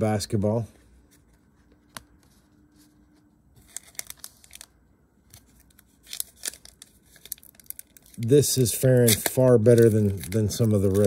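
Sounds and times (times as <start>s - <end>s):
foil wrapper crinkling: 3.6s - 11.0s.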